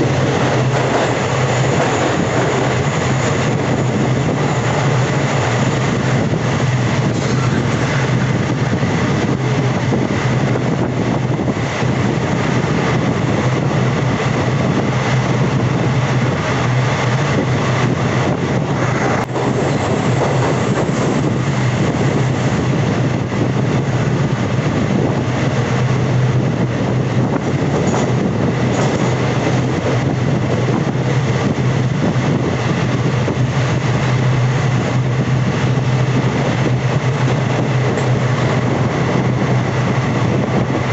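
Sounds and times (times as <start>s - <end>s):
train wheels rumbling on rails: 0.0s - 40.9s.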